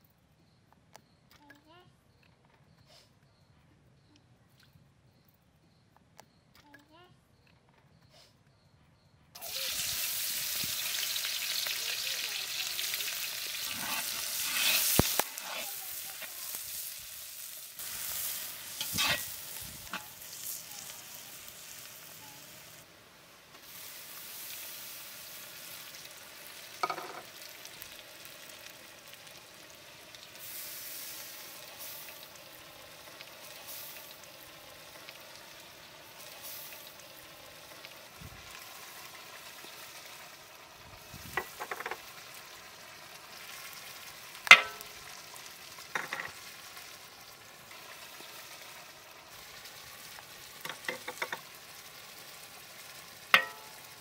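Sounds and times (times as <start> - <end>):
onions sizzling in hot oil: 9.4 - 54.0
metal spatula scraping pan: 13.6 - 15.7, 18.8 - 20.1.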